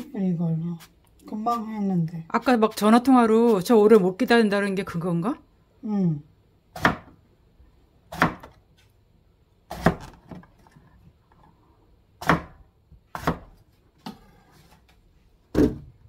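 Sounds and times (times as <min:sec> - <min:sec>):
knife chopping on cutting board: 0:06.8 - 0:07.2, 0:08.1 - 0:08.6, 0:09.7 - 0:10.2, 0:12.2 - 0:13.6.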